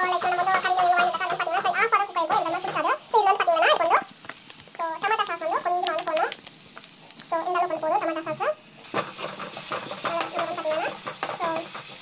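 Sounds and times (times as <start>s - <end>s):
spatula scraping a frying pan: 0.0s - 3.0s, 8.8s - 12.0s
oil sizzling: 0.0s - 12.0s.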